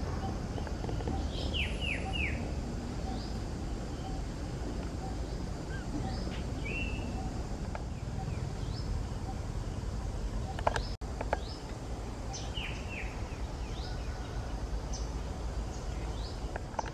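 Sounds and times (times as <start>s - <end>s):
steady low rumble: 0.0s - 16.9s
high chirping animal calls: 0.1s - 4.3s, 4.9s - 7.4s.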